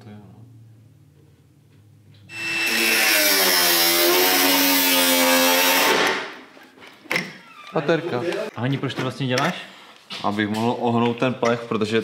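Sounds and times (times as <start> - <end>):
angle grinder cutting steel: 2.3 - 6.2.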